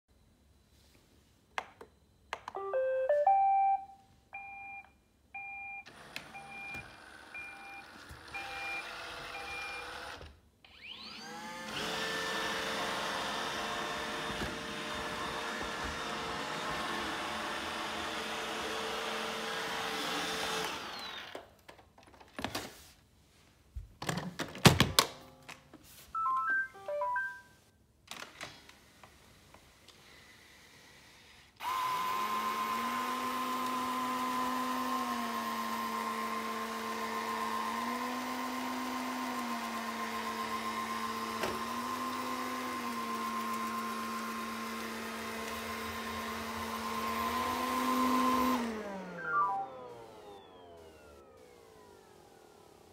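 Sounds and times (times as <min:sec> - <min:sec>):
short beeps: 0:02.6 - 0:05.8, 0:26.2 - 0:27.6, 0:49.2 - 0:49.9
robot vacuum lower hum: 0:10.7 - 0:21.3, 0:41.3 - 0:52.9
robot vacuum high-pitched hum: 0:45.7 - 0:52.9.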